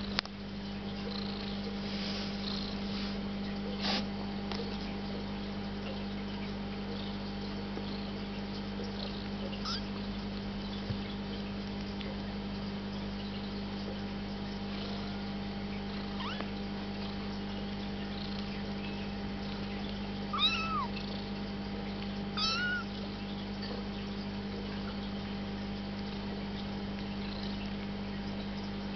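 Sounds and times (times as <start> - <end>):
steady low hum: 0.0 - 28.9
kittens mewing: 9.6 - 10.0, 16.1 - 16.5, 20.3 - 21.0, 22.4 - 23.0.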